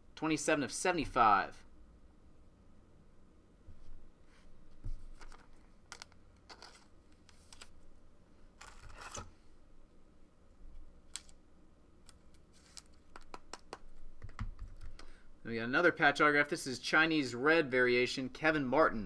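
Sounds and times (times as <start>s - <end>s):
trading cards being handled: 4.8s - 7.8s, 8.6s - 9.3s, 11.1s - 11.4s, 12.0s - 15.2s.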